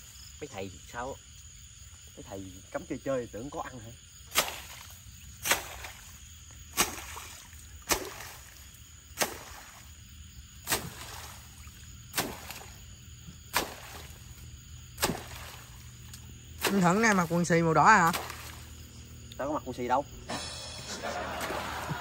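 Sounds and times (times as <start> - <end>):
high insect chirping: 0.0 - 22.0
splashes in water: 4.2 - 18.9, 21.2 - 22.0.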